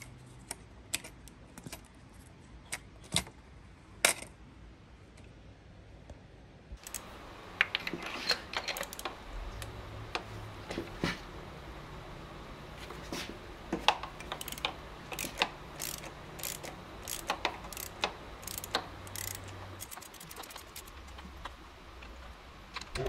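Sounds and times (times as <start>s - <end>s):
ratchet wrench clicking: 6.8s - 10.2s, 13.8s - 21.2s.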